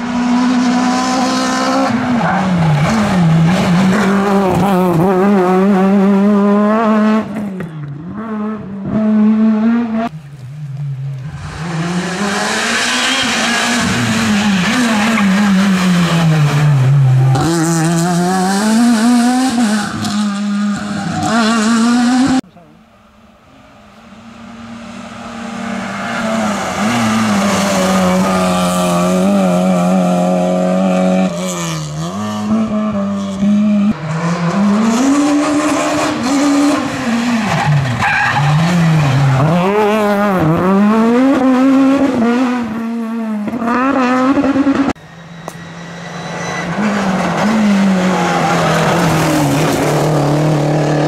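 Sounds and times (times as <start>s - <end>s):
rally car engine revving: 0.0s - 22.7s, 24.0s - 51.0s
rally car approaching: 0.0s - 51.0s
tyre squeal: 45.0s - 49.2s.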